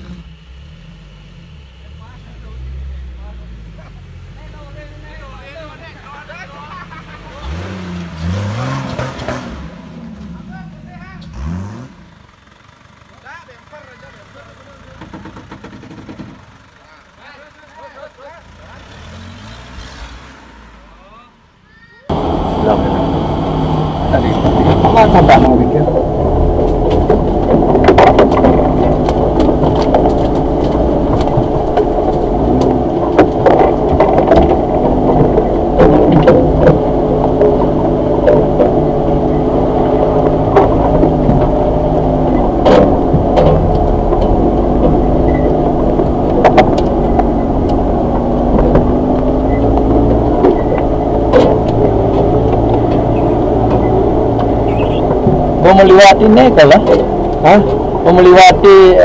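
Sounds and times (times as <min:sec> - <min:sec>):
car engine running: 0:00.0 - 0:20.0, 0:20.7 - 0:59.0
sharp knocks and rattles: 0:12.3 - 0:16.8, 0:24.1 - 0:59.0
branches scraping against car body: 0:22.2 - 0:59.0.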